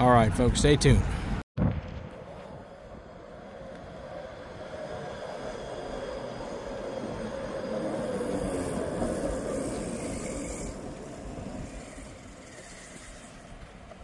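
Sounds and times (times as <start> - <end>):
vehicle passing: 2.2 - 13.7.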